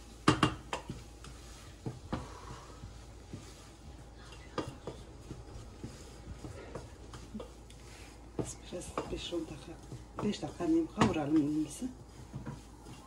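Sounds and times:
spoon knocking and scraping pot: 0.2 - 2.6, 8.4 - 13.0.

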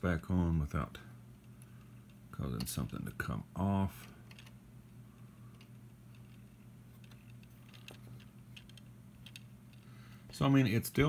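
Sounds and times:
steady low hum: 0.0 - 11.0
plastic pieces clicking: 5.5 - 9.9.

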